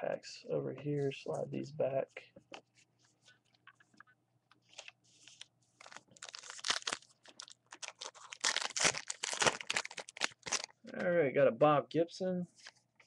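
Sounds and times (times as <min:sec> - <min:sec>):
wrapper crinkling: 0:04.7 - 0:10.8.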